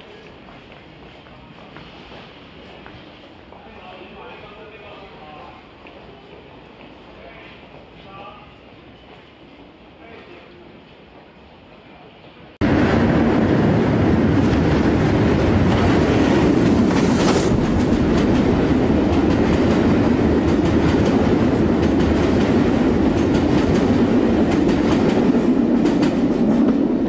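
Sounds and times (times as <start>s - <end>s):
train rumbling on rails: 12.3s - 27.0s.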